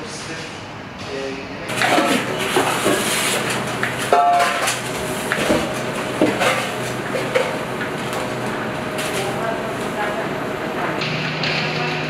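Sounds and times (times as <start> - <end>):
kitchen equipment hum: 1.6 - 12.0
utensils and pans clinking: 1.7 - 9.5.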